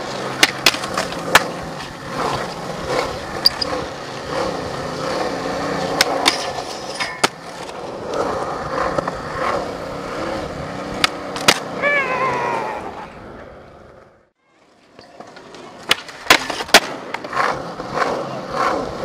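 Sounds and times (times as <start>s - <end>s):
skateboard tail clacks: 0.0s - 5.2s, 14.9s - 19.0s
skateboard wheels rolling on concrete: 0.0s - 19.0s.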